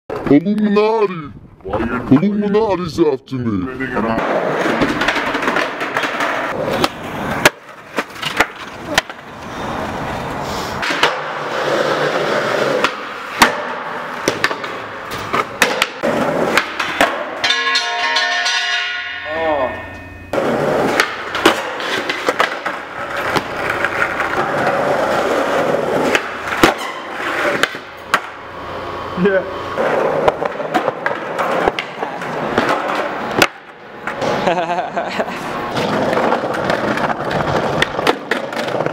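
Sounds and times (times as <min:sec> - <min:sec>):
skateboard wheels rolling on concrete: 0:00.1 - 0:02.6, 0:03.7 - 0:17.5, 0:20.3 - 0:38.9
skateboard clacks and bangs: 0:04.2 - 0:09.4, 0:10.8 - 0:19.1, 0:20.3 - 0:28.4, 0:29.8 - 0:34.4, 0:35.7 - 0:38.9.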